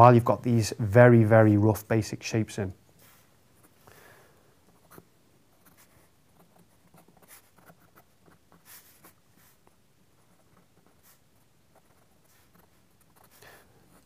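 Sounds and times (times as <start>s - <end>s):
pencil strokes on paper: 2.9s - 3.8s, 4.7s - 14.0s.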